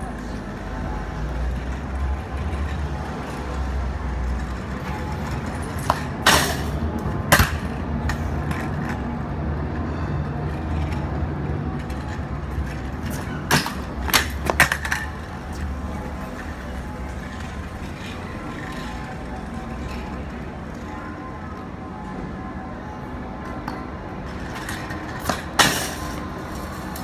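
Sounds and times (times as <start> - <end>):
city traffic rumble: 0.0 - 27.0.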